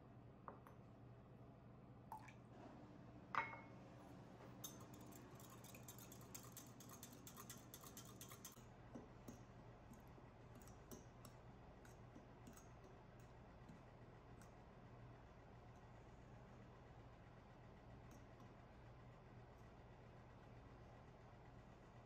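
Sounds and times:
glass clink: 3.4 - 3.7
whisk clicking in glass cup: 4.6 - 8.6
fork stirring in glass bowl: 4.6 - 14.6.

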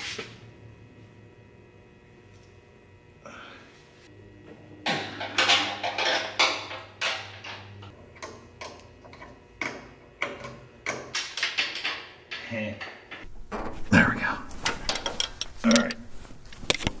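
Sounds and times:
metal knocks: 8.6 - 15.4.

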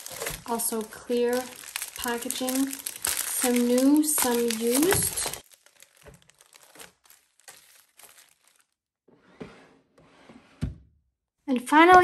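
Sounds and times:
plastic bags crinkling: 0.0 - 8.8.

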